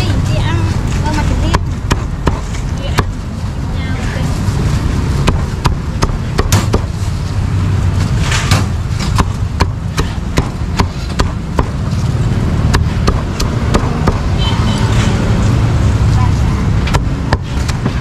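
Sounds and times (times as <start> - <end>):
street traffic rumble: 0.0 - 18.0
cleaver chopping meat: 1.5 - 3.1, 5.2 - 6.9, 8.5 - 11.8, 12.6 - 14.3, 16.9 - 18.0.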